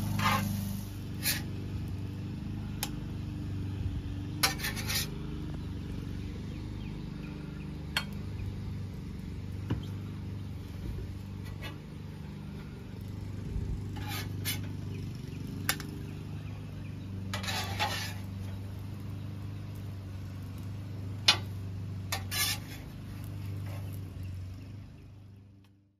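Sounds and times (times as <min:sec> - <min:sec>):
metal spatula scraping on griddle: 0:00.0 - 0:01.6, 0:04.3 - 0:05.2, 0:11.3 - 0:12.7, 0:13.7 - 0:15.0, 0:17.2 - 0:18.6, 0:21.2 - 0:24.0.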